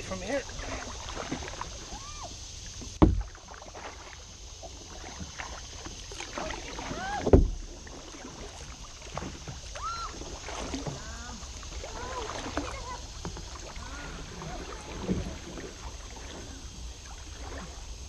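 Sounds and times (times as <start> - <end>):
water dripping and splashing: 0.0 - 17.9
kayak paddle strokes: 0.0 - 18.0
dull knocks on plastic hull: 2.9 - 3.4.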